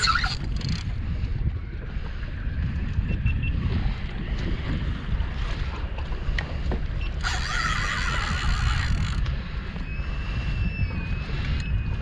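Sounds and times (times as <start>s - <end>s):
fishing reel drag buzzing: 0.0s - 0.9s, 7.2s - 9.3s.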